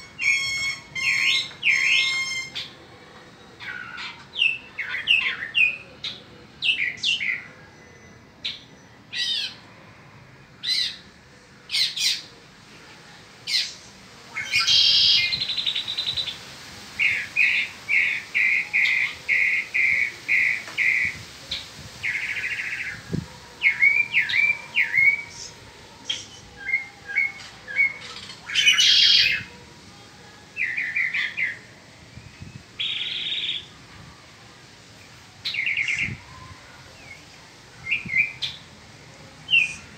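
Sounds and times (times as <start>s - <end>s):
mockingbird singing: 0.0s - 2.8s, 32.5s - 33.7s.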